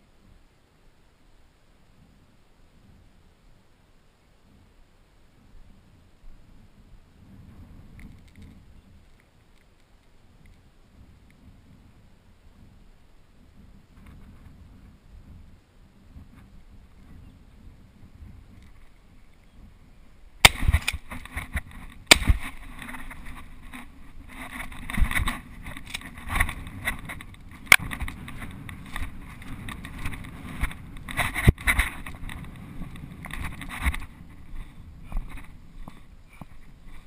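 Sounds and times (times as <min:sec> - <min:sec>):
camera being jostled: 0:20.5 - 0:34.1.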